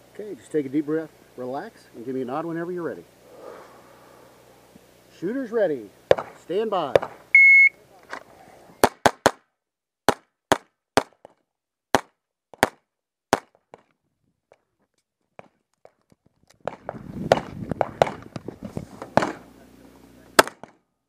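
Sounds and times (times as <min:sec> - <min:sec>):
pistol shots: 0:20.4 - 0:20.8.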